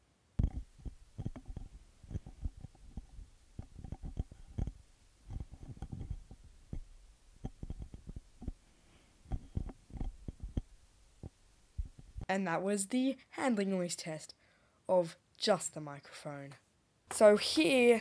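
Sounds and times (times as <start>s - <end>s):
microphone handling thumps: 0.4s - 12.3s.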